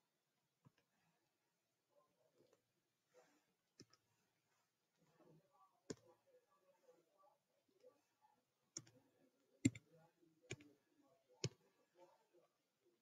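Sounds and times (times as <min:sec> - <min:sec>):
computer mouse clicks: 0:09.6 - 0:09.8.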